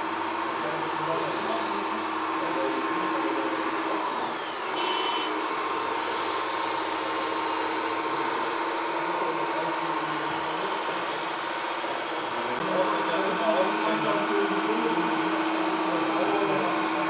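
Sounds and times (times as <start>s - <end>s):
electric motor whine: 0.0s - 17.0s
short high-pitched tone: 4.4s - 6.5s.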